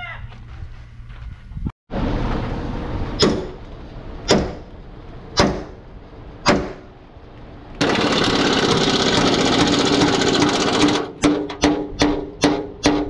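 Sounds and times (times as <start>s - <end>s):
sledgehammer striking steel chisel: 3.2s - 3.6s
loud steady rattling: 7.8s - 13.0s.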